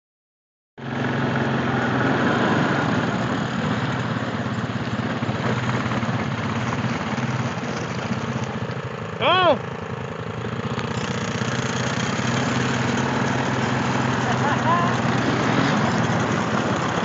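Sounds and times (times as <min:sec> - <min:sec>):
atv engine running: 0:00.8 - 0:17.0.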